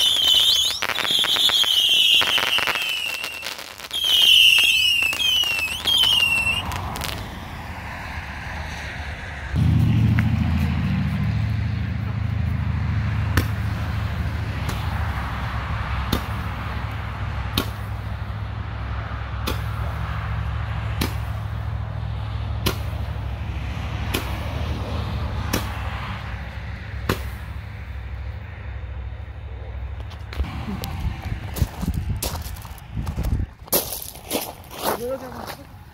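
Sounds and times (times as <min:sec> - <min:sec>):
firework pops: 0:00.0 - 0:07.3
low rumble: 0:06.8 - 0:15.2.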